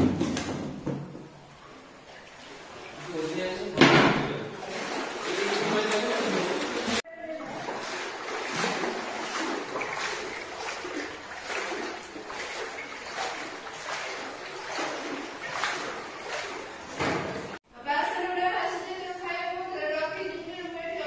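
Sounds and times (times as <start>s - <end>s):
wading through water splashes: 1.5s - 17.6s.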